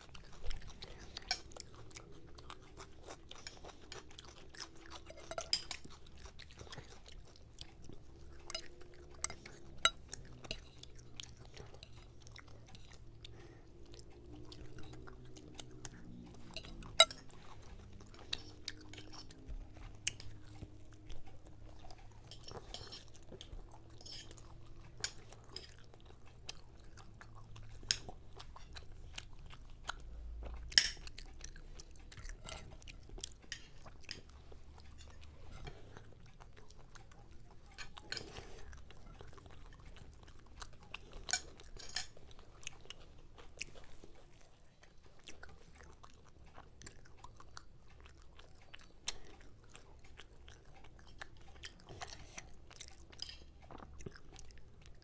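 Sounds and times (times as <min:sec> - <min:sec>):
chewing and crunching food: 0:00.0 - 0:55.0
faint low hum: 0:00.0 - 0:55.0
cutlery clinking on plates: 0:05.0 - 0:05.9, 0:22.3 - 0:23.1, 0:30.8 - 0:31.0, 0:41.3 - 0:42.1.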